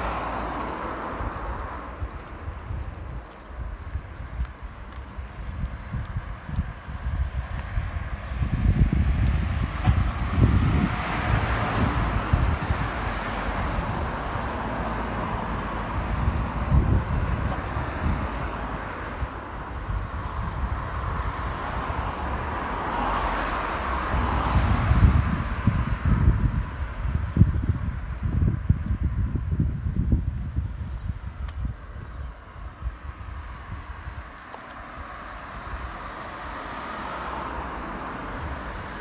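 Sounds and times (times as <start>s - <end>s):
car passing: 0.0s - 3.2s, 6.2s - 28.8s, 31.3s - 39.0s
wind gusting on microphone: 0.0s - 39.0s.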